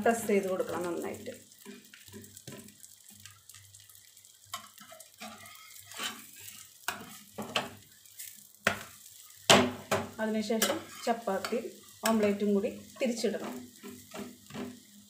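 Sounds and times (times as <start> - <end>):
omelette sizzling in a frying pan: 0.0 - 15.0
spatula scraping and knocking pan: 4.5 - 12.3, 13.4 - 14.9.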